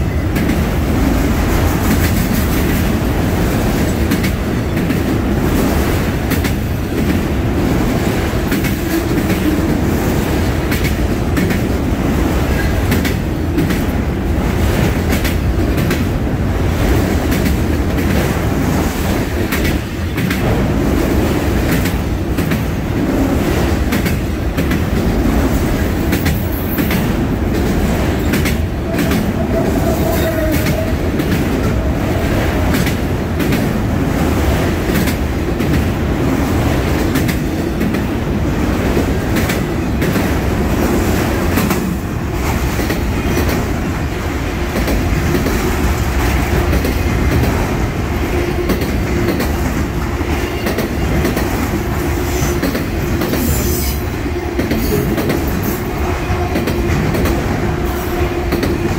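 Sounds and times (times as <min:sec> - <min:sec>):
train wheels rumbling on rail: 0:00.0 - 0:58.9
wheels clicking over rail joints: 0:18.9 - 0:33.9.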